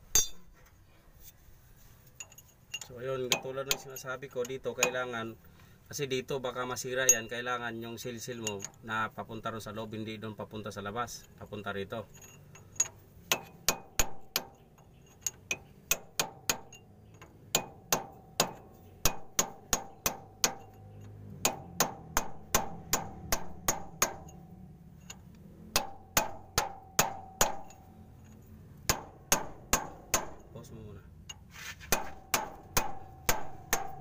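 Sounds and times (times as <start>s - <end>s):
hammer tapping steel drift: 0.0s - 0.6s, 2.2s - 5.3s, 12.1s - 30.6s, 31.2s - 34.0s.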